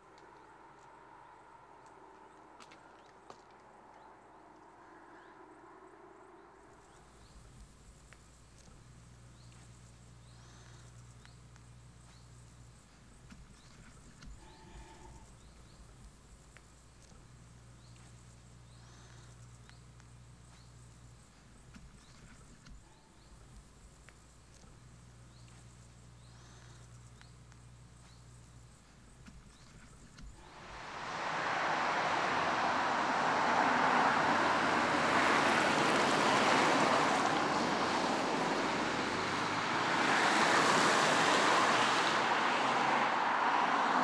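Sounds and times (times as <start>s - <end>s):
soft bird chirps: 0.0s - 30.8s
low steady hum: 0.0s - 35.3s.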